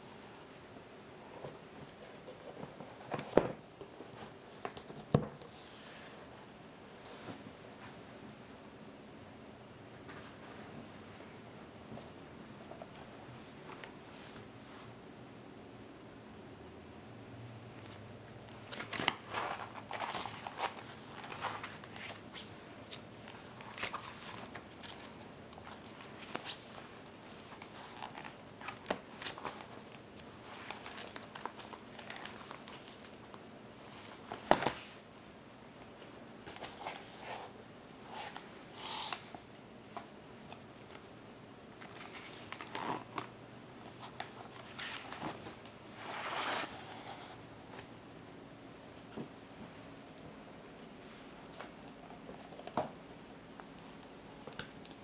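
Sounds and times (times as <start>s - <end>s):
plastic sheet pages rustling: 18.6s - 35.0s, 41.8s - 47.3s.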